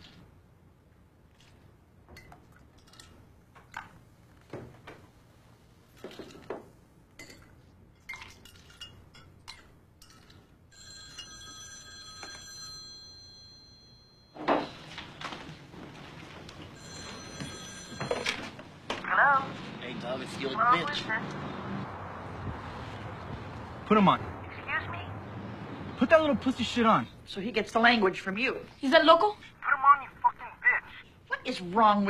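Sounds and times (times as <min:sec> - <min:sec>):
telephone bell ringing: 0:10.7 - 0:15.4, 0:16.6 - 0:19.5.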